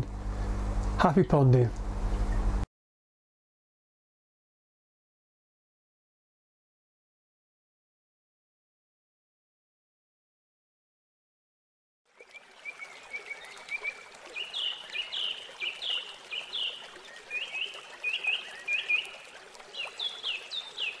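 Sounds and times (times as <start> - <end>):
birds chirping and whistling: 13.7 - 19.2.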